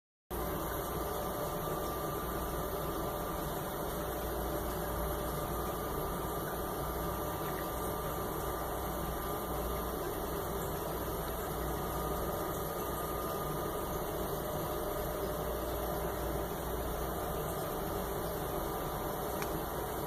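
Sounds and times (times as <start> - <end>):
steady hum and hiss: 0.3 - 20.0.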